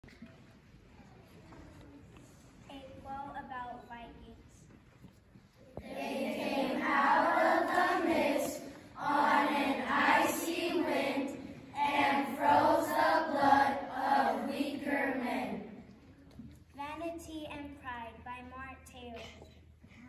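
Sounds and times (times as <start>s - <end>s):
children chanting in unison: 5.8s - 15.8s.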